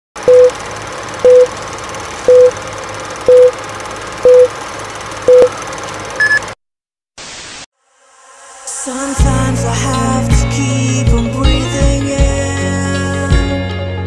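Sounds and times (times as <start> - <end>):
countdown beeps with clicks: 0.3 - 0.5, 1.3 - 1.5, 2.3 - 2.5, 3.3 - 3.5, 4.3 - 4.5
higher-pitched beep: 0.3 - 0.5, 1.3 - 1.5, 2.3 - 2.5, 3.3 - 3.5, 4.3 - 4.5, 6.2 - 6.4.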